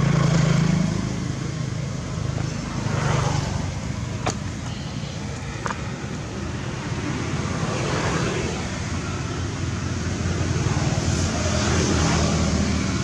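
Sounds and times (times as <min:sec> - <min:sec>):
low engine rumble: 0:00.0 - 0:13.0.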